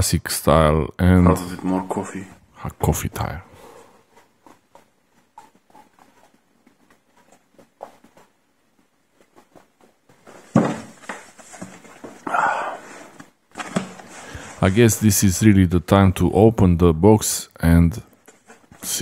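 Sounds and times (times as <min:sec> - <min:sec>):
cardboard scraping and rustling: 0:10.2 - 0:12.2, 0:12.9 - 0:14.9.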